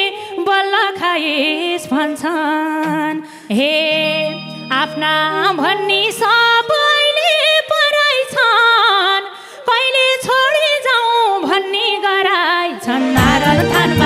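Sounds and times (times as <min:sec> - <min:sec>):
woman singing folk melody: 0:00.0 - 0:14.0
band playing steady beat: 0:13.0 - 0:14.0.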